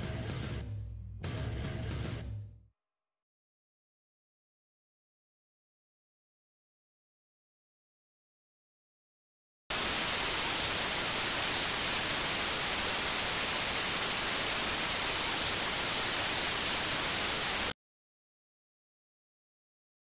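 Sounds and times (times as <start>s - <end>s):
static hiss: 9.7s - 17.7s.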